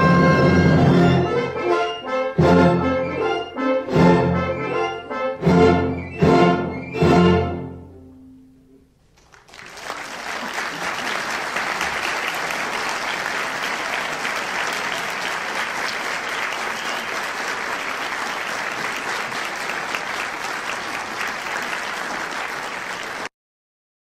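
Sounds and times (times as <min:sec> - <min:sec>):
audience applauding: 0:09.2 - 0:23.3.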